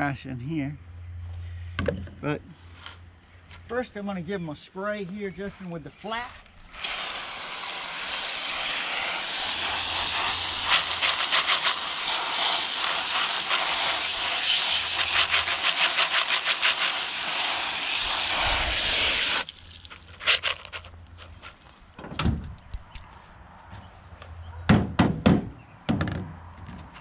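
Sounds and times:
hose nozzle spraying water: 6.7 - 20.9.

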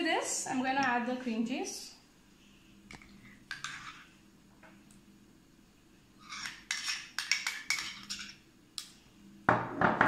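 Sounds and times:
metal spoon scraping: 3.2 - 4.1, 6.2 - 8.4.

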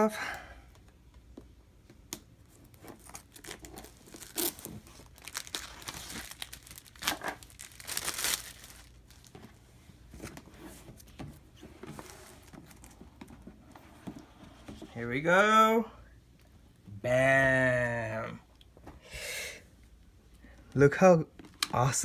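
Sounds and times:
plastic wrap crackling: 2.6 - 9.4.

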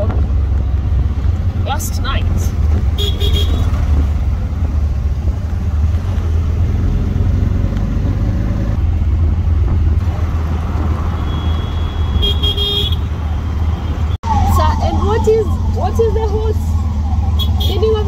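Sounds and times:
traffic engine rumble: 0.0 - 18.0
vehicle horn honking: 3.0 - 3.7, 11.2 - 13.1.

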